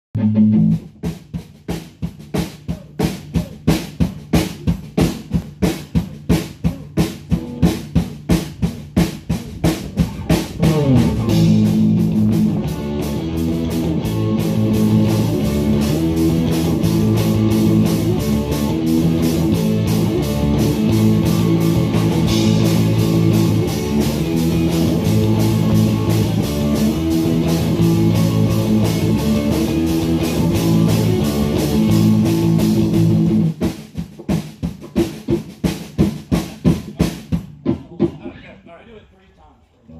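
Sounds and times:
guitar chords: 0:00.2 - 0:00.9, 0:09.9 - 0:33.6
drum kit beat: 0:00.2 - 0:38.6.

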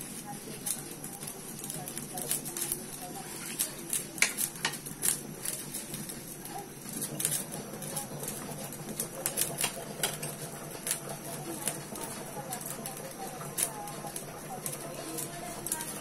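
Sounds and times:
wooden spatula scraping a wok: 0:03.0 - 0:04.0.

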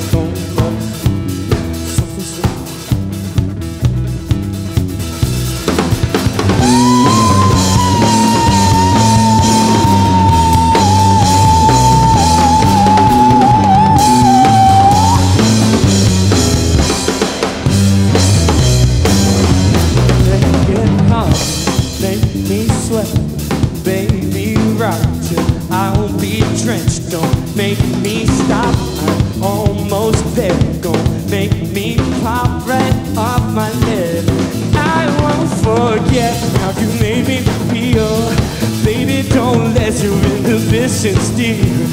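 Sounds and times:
drums: 0:00.0 - 0:41.9
electric bass: 0:00.0 - 0:41.9
electric guitar: 0:00.0 - 0:41.9
long high held note: 0:06.6 - 0:15.5.

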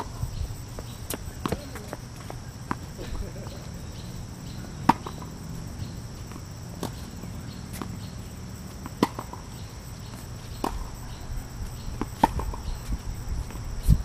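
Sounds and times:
high-pitched background drone: 0:00.0 - 0:14.0
tennis ball hits and bounces: 0:01.1 - 0:01.9, 0:04.8 - 0:05.4, 0:08.8 - 0:11.0, 0:11.9 - 0:12.7.

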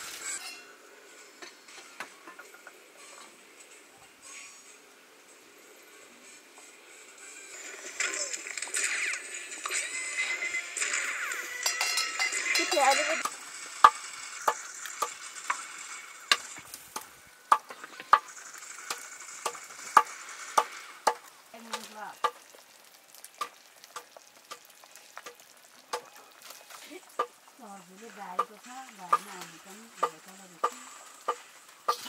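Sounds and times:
food sizzling in a pan: 0:00.0 - 0:32.0
utensil knocking against pan: 0:30.0 - 0:32.0.

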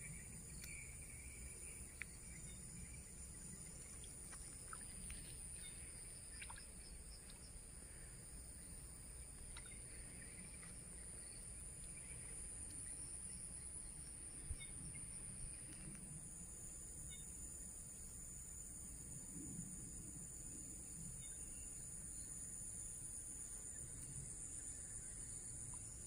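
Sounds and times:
faint bird chirps: 0:00.0 - 0:15.1.

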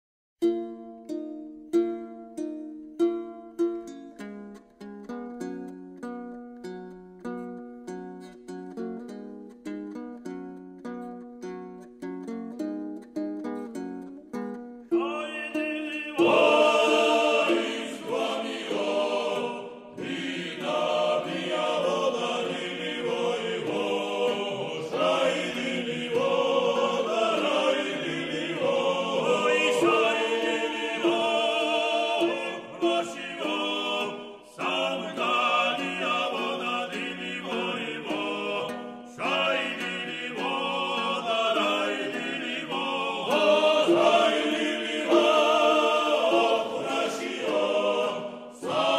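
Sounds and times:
plucked string notes: 0:00.4 - 0:48.9
choir singing: 0:14.9 - 0:48.9.

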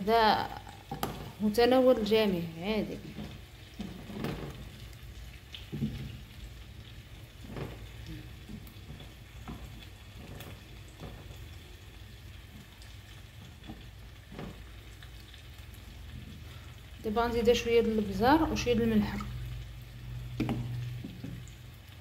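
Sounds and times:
potato slices sizzling in butter: 0:00.0 - 0:21.0.

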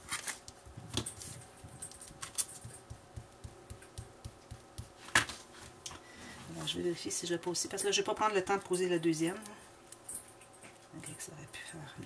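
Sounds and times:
paper taps and rustles: 0:00.1 - 0:05.8.

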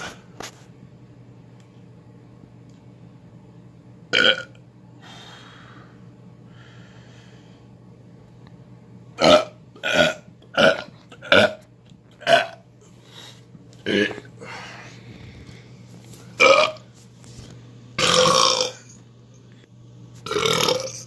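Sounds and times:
low steady hum: 0:00.0 - 0:21.0
man burping: 0:04.1 - 0:04.6, 0:09.2 - 0:11.6, 0:12.2 - 0:12.6, 0:13.8 - 0:14.5, 0:16.4 - 0:16.8, 0:18.0 - 0:19.0, 0:20.3 - 0:21.0
faint breathy sounds: 0:05.0 - 0:07.7.

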